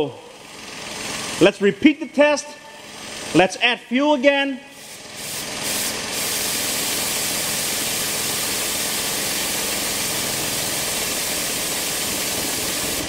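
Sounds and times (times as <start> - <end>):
car engine idling: 0.0 - 1.8, 2.6 - 3.9
spray can hissing: 4.7 - 13.0.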